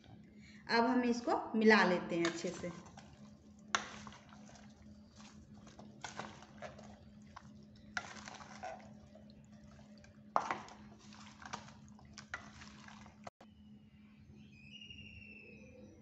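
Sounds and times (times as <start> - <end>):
wet squelching and scraping: 2.1 - 13.4.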